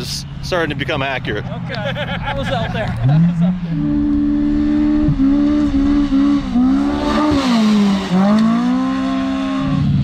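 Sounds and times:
two-stroke engine at high revs: 0:03.8 - 0:10.0.

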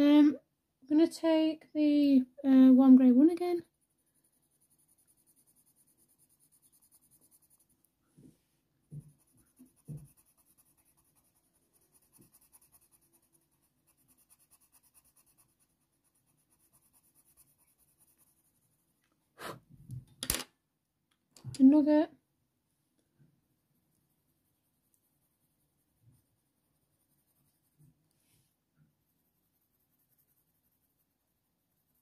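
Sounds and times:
pencil scratching on paper: 0:03.6 - 0:07.8, 0:08.9 - 0:18.9, 0:23.9 - 0:28.2, 0:28.8 - 0:32.0.

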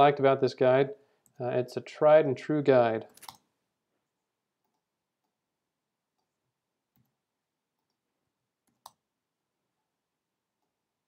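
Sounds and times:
mouse and keyboard clicks: 0:03.1 - 0:03.5.

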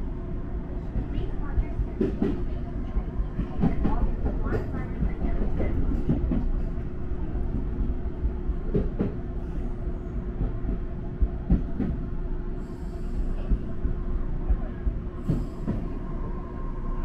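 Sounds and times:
constant hum: 0:00.0 - 0:17.0
train wheels rumbling on track: 0:00.0 - 0:17.0
clacks over rail joints: 0:01.9 - 0:02.6, 0:03.4 - 0:06.9, 0:08.7 - 0:09.2.

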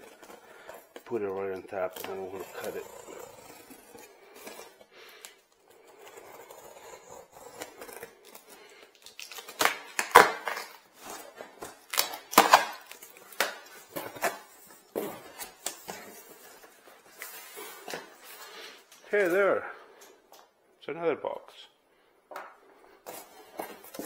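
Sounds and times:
cardboard box being cut and opened: 0:01.9 - 0:04.8, 0:05.9 - 0:08.5.

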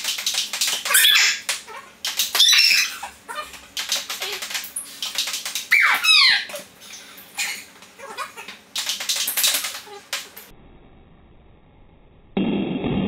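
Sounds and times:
sped-up squeaky voices: 0:00.8 - 0:04.6, 0:05.6 - 0:08.6, 0:09.5 - 0:10.2
high squealing cry: 0:00.9 - 0:03.5, 0:05.7 - 0:06.7.

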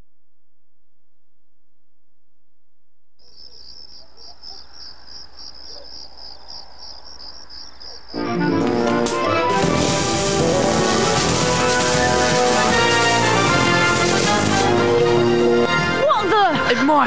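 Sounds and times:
crickets chirping: 0:03.2 - 0:08.4
music: 0:08.2 - 0:17.0.

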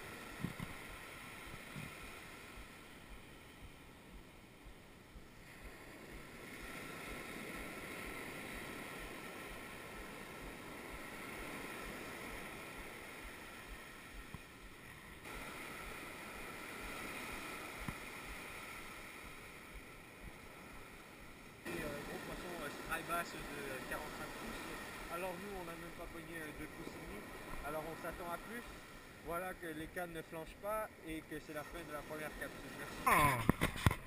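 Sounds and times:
wind buffeting microphone: 0:00.0 - 0:21.4
ocean surf on beach: 0:00.0 - 0:34.0.

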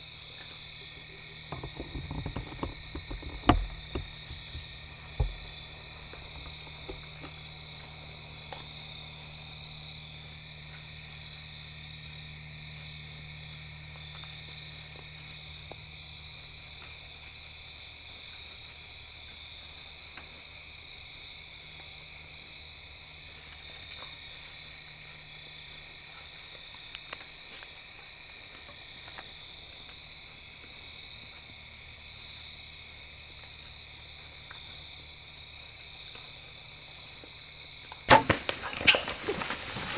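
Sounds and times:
crickets and night insects trilling: 0:00.0 - 0:39.9.

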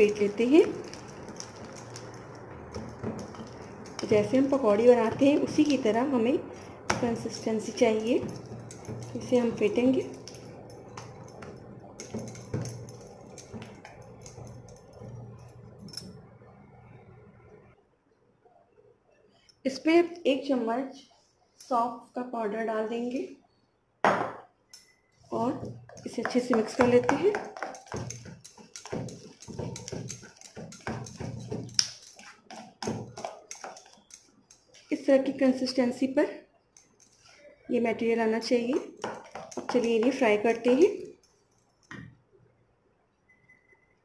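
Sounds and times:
hand slapping wet batter: 0:26.3 - 0:34.0.

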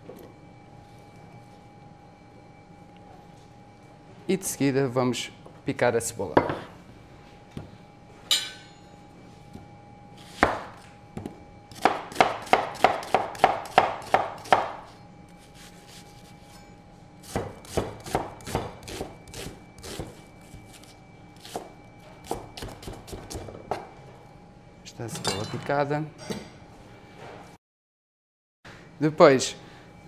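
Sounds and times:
knife chopping onion on board: 0:10.3 - 0:14.8, 0:17.2 - 0:20.8, 0:21.4 - 0:23.4.

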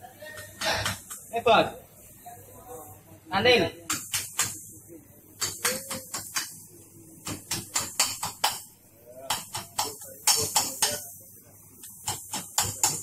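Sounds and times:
sharp knocks and taps: 0:03.9 - 0:04.6, 0:05.4 - 0:06.6, 0:07.2 - 0:08.7, 0:09.3 - 0:11.0.

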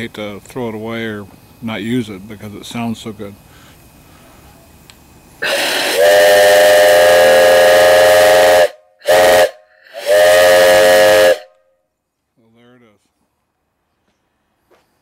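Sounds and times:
rush of steam: 0:00.0 - 0:11.5
steam whistle blasts: 0:05.4 - 0:11.6.

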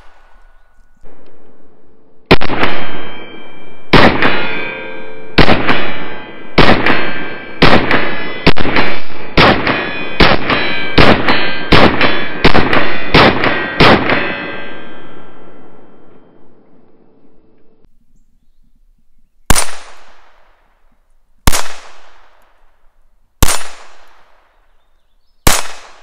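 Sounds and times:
pistol shots with ringing echo: 0:02.3 - 0:15.7, 0:19.5 - 0:20.6, 0:21.4 - 0:22.6, 0:23.4 - 0:26.0.

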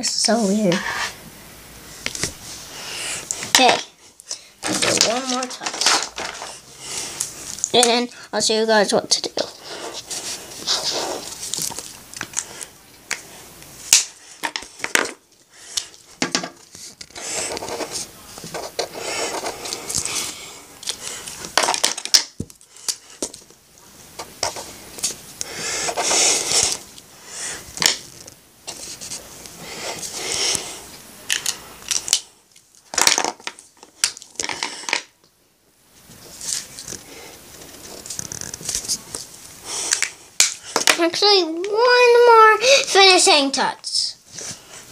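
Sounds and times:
marker scratching on paper: 0:09.4 - 0:11.4, 0:17.1 - 0:20.2, 0:25.6 - 0:26.8.

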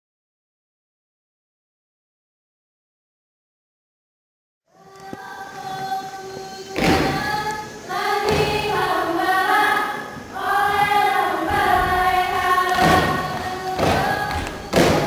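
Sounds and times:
group singing a chant: 0:04.8 - 0:15.0.

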